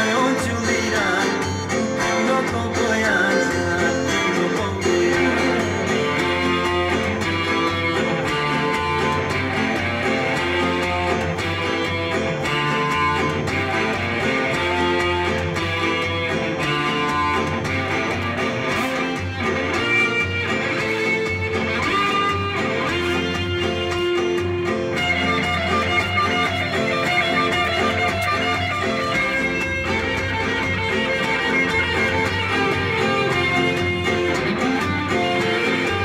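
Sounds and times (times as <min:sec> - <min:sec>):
plucked string melody: 0:00.0 - 0:36.0.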